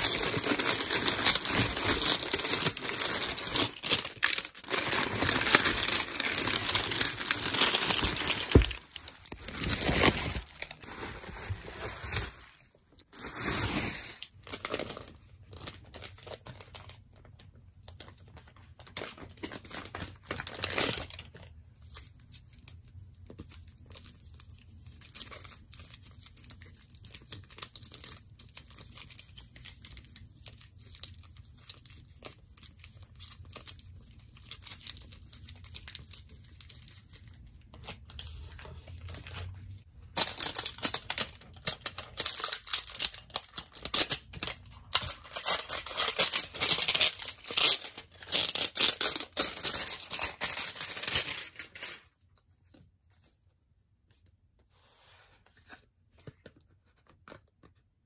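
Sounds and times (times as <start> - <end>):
shrink wrap tearing: 0.0 - 12.4, 18.0 - 21.5, 40.2 - 52.1
plastic crinkling: 0.0 - 21.5, 25.1 - 52.2.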